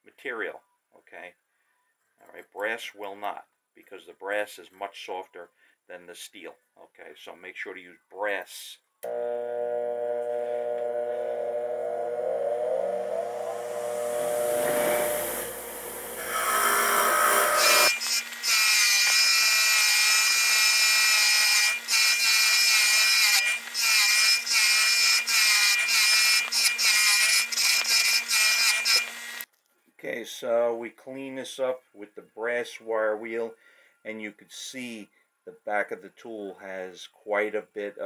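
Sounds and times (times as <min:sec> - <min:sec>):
bench motor humming: 0:09.0 - 0:20.8.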